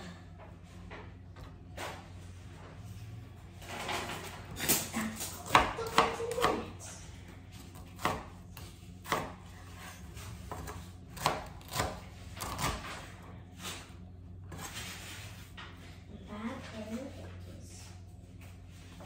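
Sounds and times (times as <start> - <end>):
knife chopping on cutting board: 5.3 - 6.8, 7.6 - 13.1.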